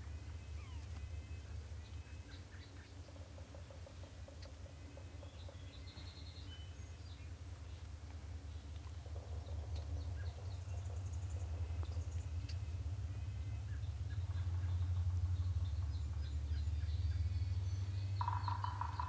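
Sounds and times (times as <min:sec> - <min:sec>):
bird chirps: 0:00.0 - 0:07.8, 0:09.4 - 0:19.0
rattling turkey call: 0:18.2 - 0:19.0.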